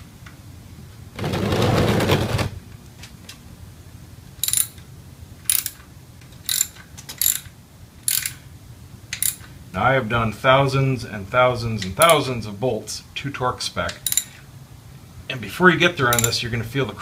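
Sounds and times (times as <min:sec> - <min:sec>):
socket ratchet clicking: 0:04.4 - 0:04.8, 0:05.5 - 0:05.8, 0:06.4 - 0:07.5, 0:08.1 - 0:08.4, 0:09.1 - 0:09.5, 0:12.0 - 0:12.2, 0:13.9 - 0:14.4, 0:16.1 - 0:16.4.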